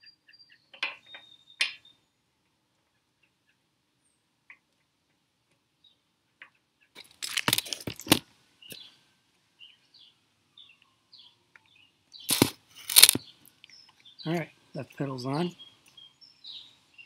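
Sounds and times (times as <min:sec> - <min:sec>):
faint bird chirps: 0:00.0 - 0:02.2, 0:09.6 - 0:12.3
metal bicycle pedal rattling: 0:12.3 - 0:13.2.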